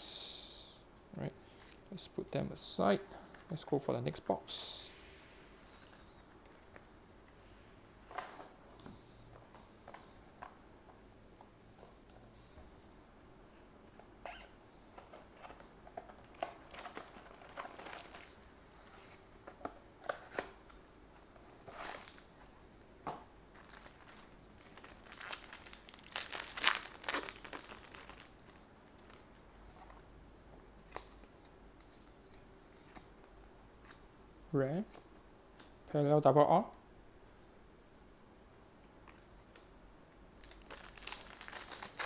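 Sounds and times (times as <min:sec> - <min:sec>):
cardboard and wrapper rustling: 0:14.9 - 0:19.2, 0:21.6 - 0:22.3, 0:23.5 - 0:30.0, 0:40.4 - 0:42.0
wrapper crinkling and tearing: 0:16.2 - 0:18.4, 0:21.6 - 0:22.3, 0:23.5 - 0:29.8, 0:40.4 - 0:42.0.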